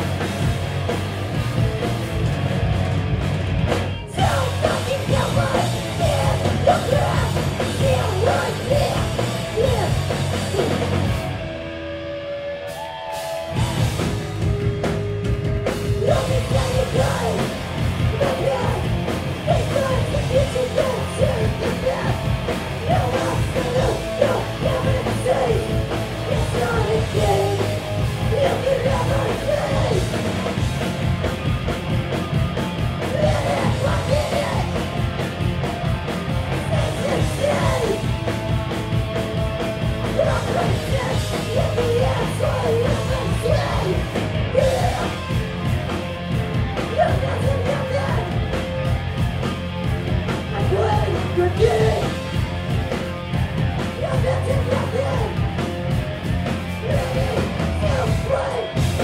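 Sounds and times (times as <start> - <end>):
punk band playing live: 0.0 - 59.0
vocalist yelling: 53.9 - 55.4, 56.8 - 58.8.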